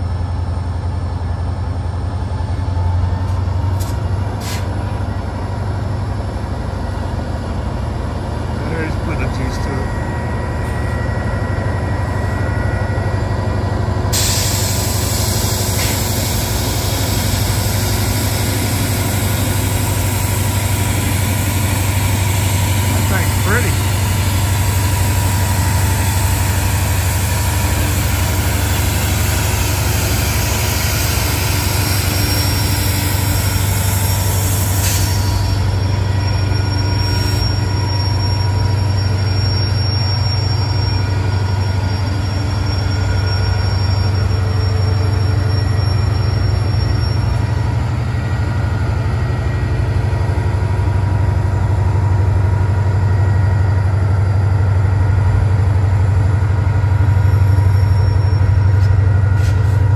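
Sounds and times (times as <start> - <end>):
diesel locomotive engine droning: 0.0 - 59.9
wheel squeal on rails: 21.0 - 48.0, 57.1 - 59.9.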